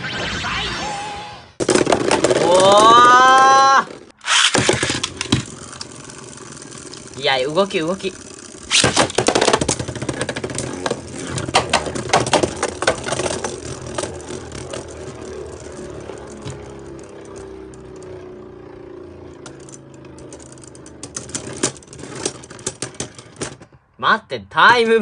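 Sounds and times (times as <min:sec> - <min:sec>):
spinning tops clattering: 0:01.6 - 0:18.2
spinning tops whirring: 0:01.6 - 0:23.6.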